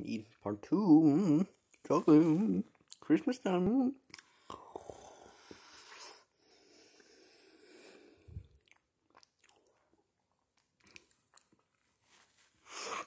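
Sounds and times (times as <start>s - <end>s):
person chewing chocolate: 4.0s - 6.0s, 8.3s - 11.9s.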